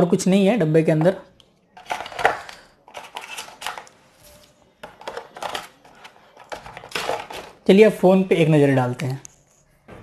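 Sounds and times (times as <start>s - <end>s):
cardboard packaging rustling: 1.8s - 7.7s.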